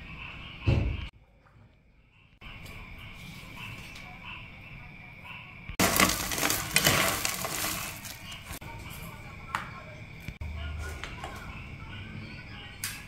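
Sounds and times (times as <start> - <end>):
hand crunching crispy chips: 5.8 - 8.6.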